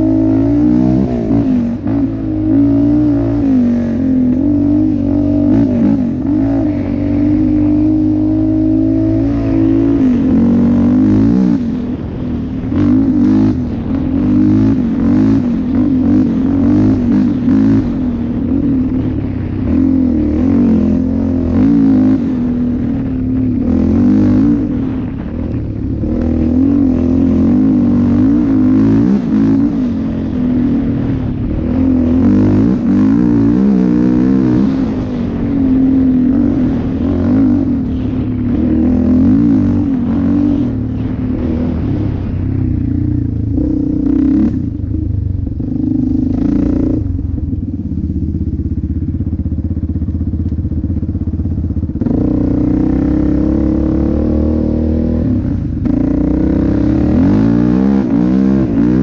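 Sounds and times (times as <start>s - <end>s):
atv engine revving: 0.0s - 59.0s.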